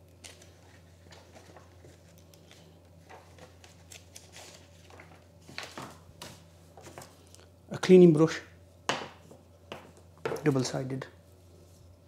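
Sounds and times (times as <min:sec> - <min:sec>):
low steady hum: 0:00.0 - 0:12.0
pages rustling and flicking: 0:00.1 - 0:07.3.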